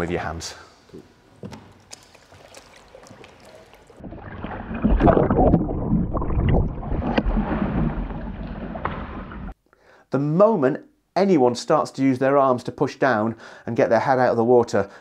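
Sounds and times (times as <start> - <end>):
water lapping: 1.7 - 5.1
water splashing and churning: 1.8 - 9.6.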